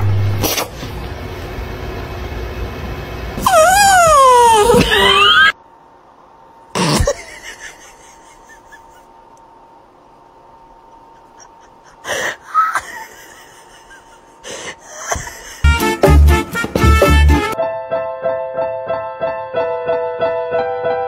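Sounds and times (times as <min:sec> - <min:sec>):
faint steady hum: 0:00.0 - 0:15.7.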